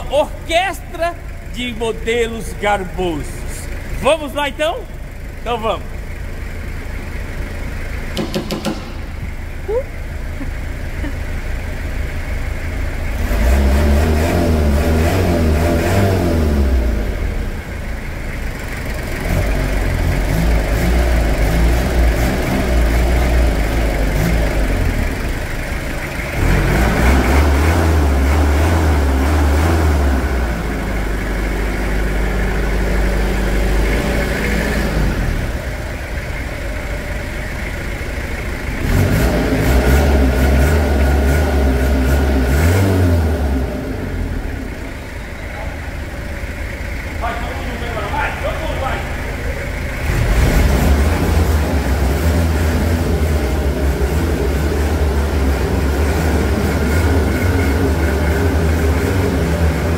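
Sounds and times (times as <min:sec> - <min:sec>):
diesel engines revving and idling: 0:00.0 - 0:59.9.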